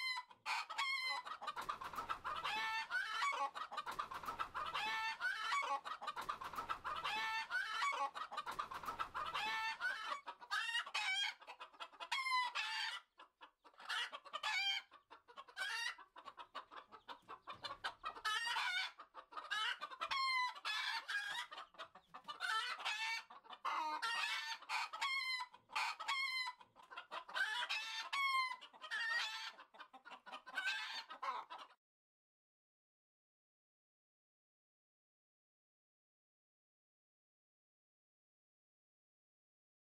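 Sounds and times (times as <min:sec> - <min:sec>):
chickens clucking: 0:00.0 - 0:31.8.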